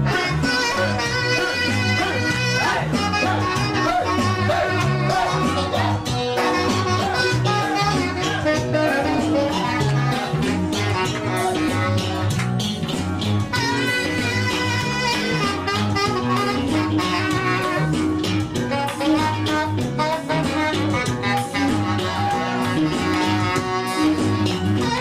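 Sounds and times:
bass line: 0.0 - 25.0
dance band backing: 0.0 - 25.0
saxophone melody: 0.0 - 25.0.

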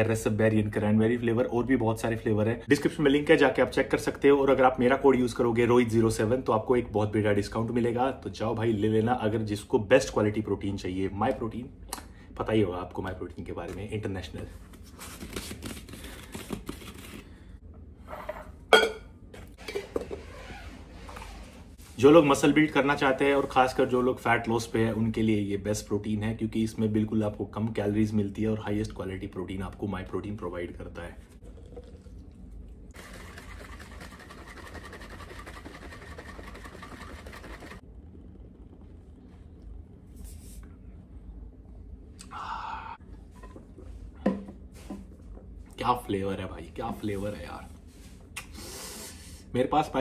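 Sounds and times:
shaker bottle rattling: 33.0 - 37.8.

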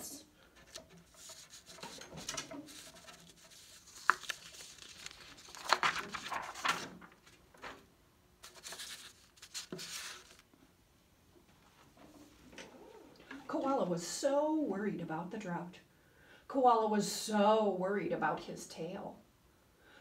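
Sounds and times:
paper sheets rustling and crinkling: 0.5 - 10.4.

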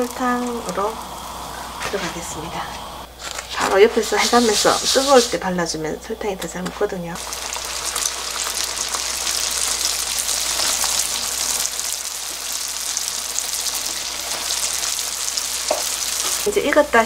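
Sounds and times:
dough sizzling in hot oil: 0.0 - 2.3, 7.2 - 16.6.

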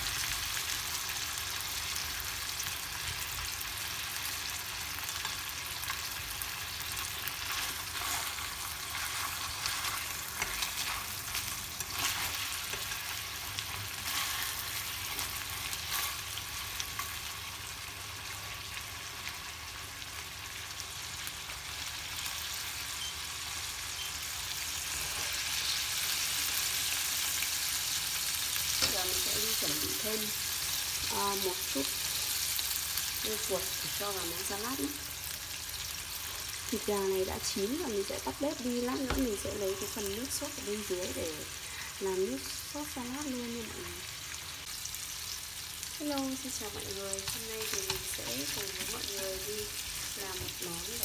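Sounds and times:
chicken sizzling in oil: 0.0 - 51.0.

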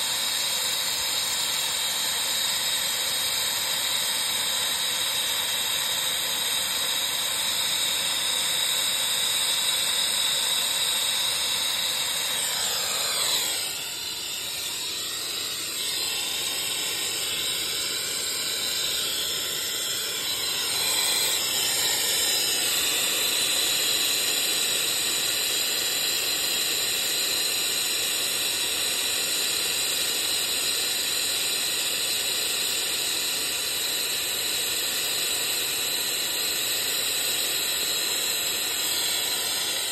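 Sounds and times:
steady hiss: 0.0 - 6.8
brazing torch flame hissing: 0.0 - 28.3, 37.4 - 39.9.

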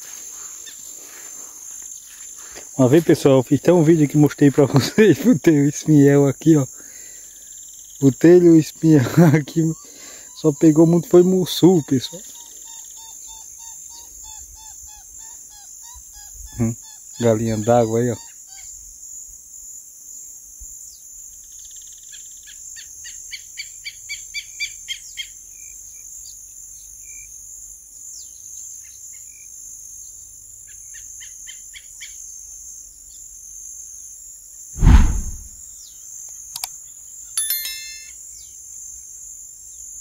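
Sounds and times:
loud low thump: 34.8 - 35.5.

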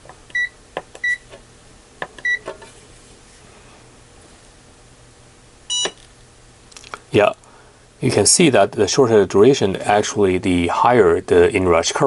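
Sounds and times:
short electronic beeps: 5.7 - 6.0.

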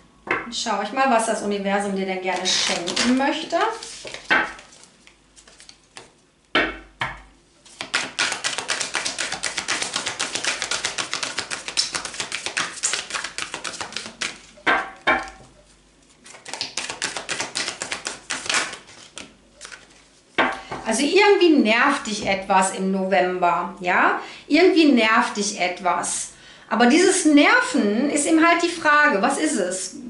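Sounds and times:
cards being shuffled: 2.3 - 6.2, 7.6 - 14.6, 16.2 - 20.2.

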